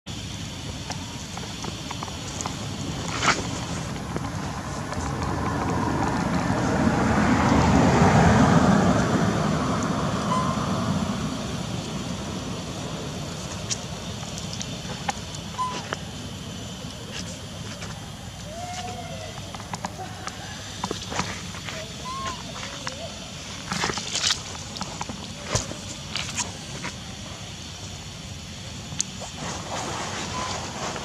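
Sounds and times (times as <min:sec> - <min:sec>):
vehicle passing by: 0:04.4 - 0:13.3
short high chirps: 0:10.2 - 0:10.7.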